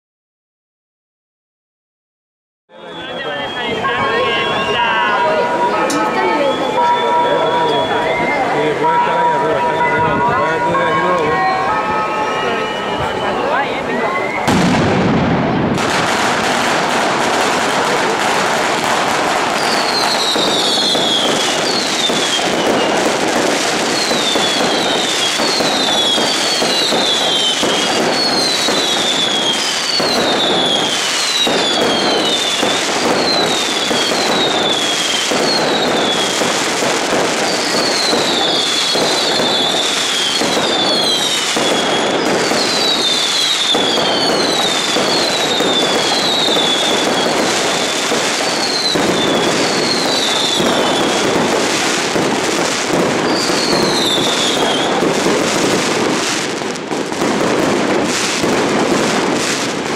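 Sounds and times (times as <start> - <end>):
firecrackers banging and crackling: 2.7 - 59.9
whistling fireworks: 2.7 - 59.9.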